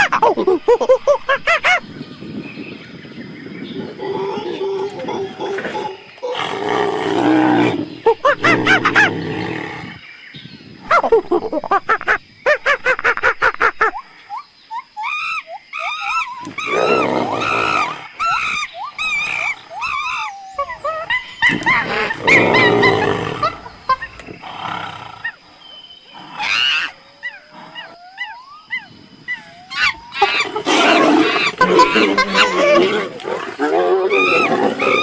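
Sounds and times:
tigers snarling and growling: 3.8s - 10.0s, 15.8s - 28.2s, 29.4s - 35.0s
high-pitched yelping calls: 13.8s - 24.2s, 26.3s - 33.2s.

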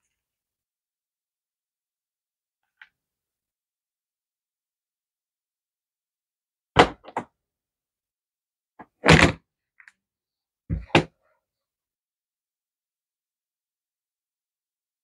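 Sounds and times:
objects thudding on a table: 10.7s - 11.2s.

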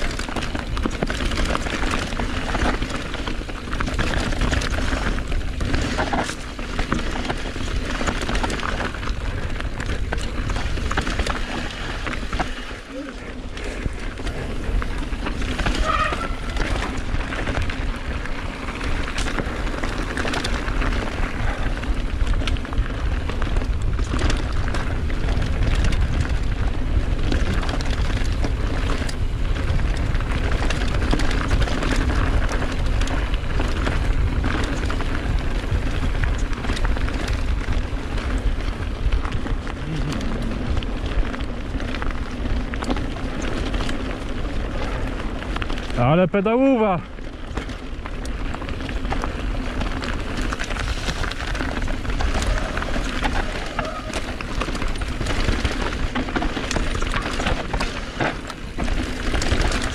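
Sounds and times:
bike rattling and clicking: 0.0s - 59.9s
wind buffeting microphone: 0.0s - 59.9s.

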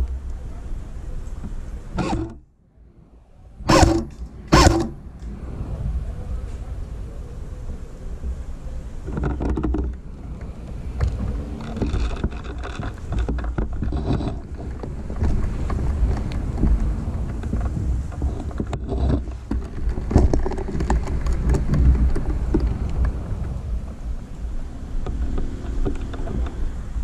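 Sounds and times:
wind rumble on microphone: 0.0s - 27.0s
knocks and rustles of movement: 8.2s - 27.0s.

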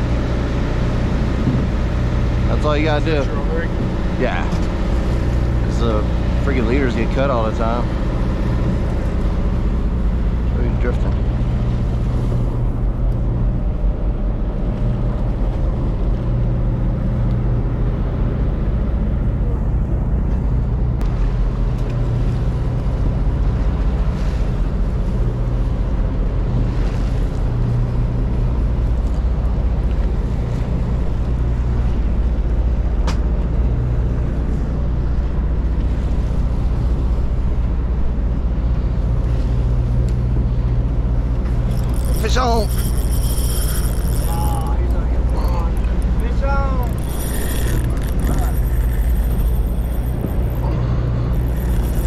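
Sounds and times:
boat engine idling: 0.0s - 52.0s.

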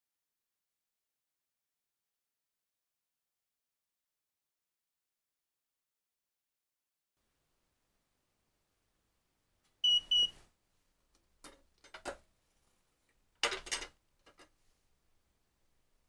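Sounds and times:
short high beeps: 9.8s - 10.3s.

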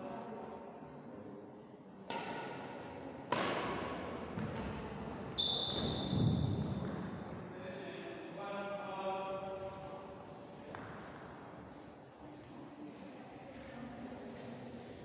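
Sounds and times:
rackets striking shuttlecock: 2.1s - 2.6s.

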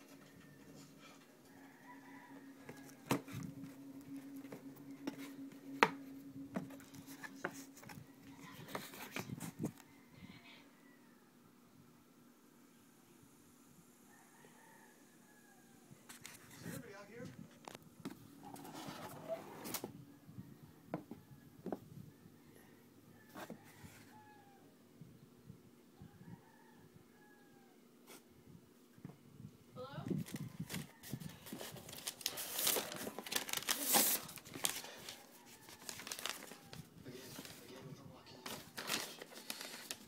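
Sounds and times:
cardboard box crinkling and rustling: 30.3s - 37.7s, 38.5s - 40.0s.

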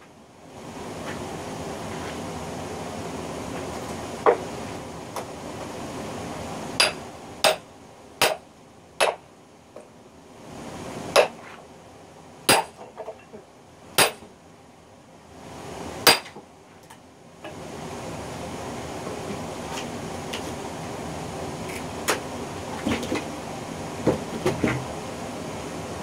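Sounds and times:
hammer striking metal: 6.8s - 7.6s, 8.2s - 8.4s, 12.5s - 12.8s, 14.0s - 14.2s, 16.1s - 16.3s.

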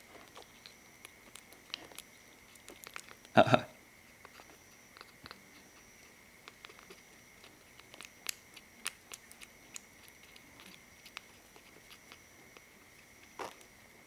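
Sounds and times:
kitten suckling wet clicks: 4.1s - 13.7s.

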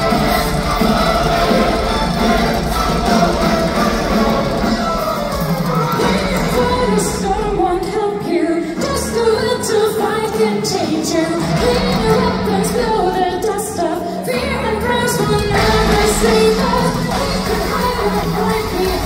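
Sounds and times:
metal band playing: 0.0s - 7.6s
woman singing: 4.7s - 19.0s.

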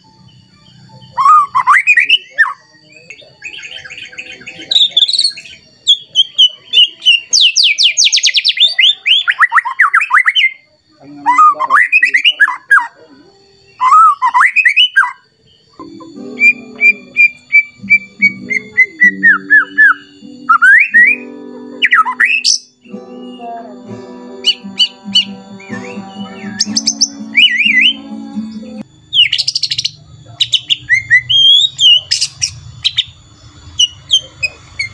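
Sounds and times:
bird singing whistles and trills: 0.1s - 34.9s
low steady drone: 15.8s - 28.9s.

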